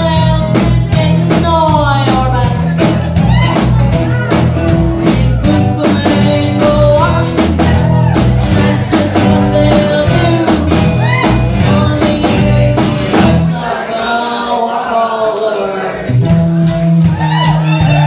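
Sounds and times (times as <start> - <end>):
girl singing into microphone: 0.0 - 2.6, 5.0 - 7.6, 8.4 - 15.8
electric guitar: 0.0 - 13.6, 16.0 - 18.0
rock band playing: 0.0 - 14.1, 15.6 - 18.0.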